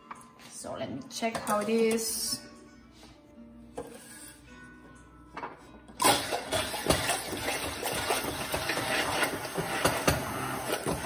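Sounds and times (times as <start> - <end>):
hand blender whirring: 6.0 - 11.0.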